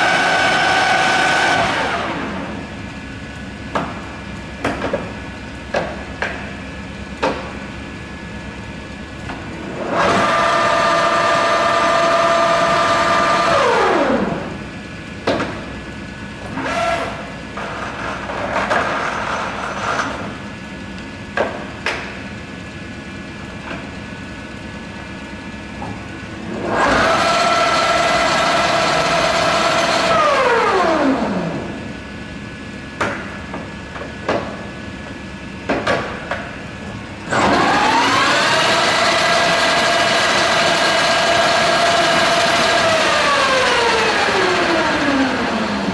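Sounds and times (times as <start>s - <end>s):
lathe motor running: 0.0s - 4.5s, 6.8s - 17.9s, 22.5s - 32.2s, 37.1s - 45.9s
lathe controls clicking and clunking: 3.7s - 6.6s, 7.2s - 7.6s.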